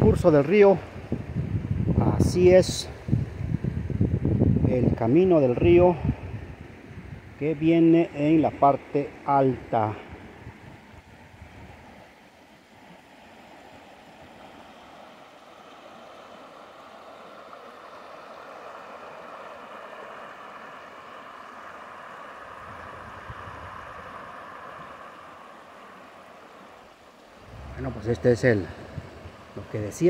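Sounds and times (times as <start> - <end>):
river rushing over rocks: 11.9 - 30.0.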